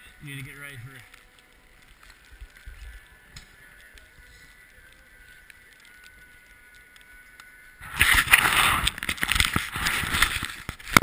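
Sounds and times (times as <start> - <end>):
snowboard sliding over snow: 7.8 - 11.0.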